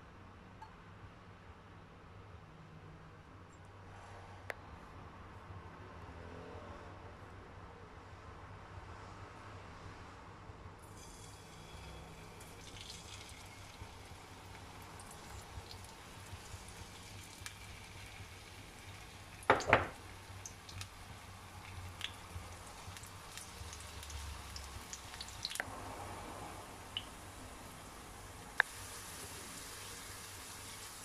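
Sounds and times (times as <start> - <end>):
oil sizzling in a frying pan: 10.8 - 25.7, 26.9 - 31.0.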